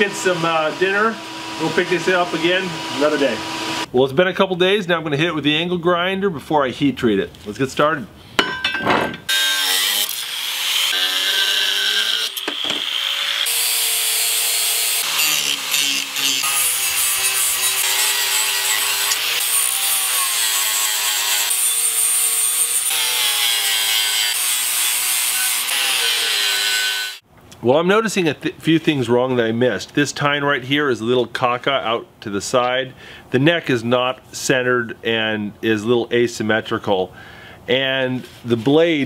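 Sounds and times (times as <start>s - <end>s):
angle grinder grinding steel: 0.0s - 3.9s, 9.3s - 27.2s.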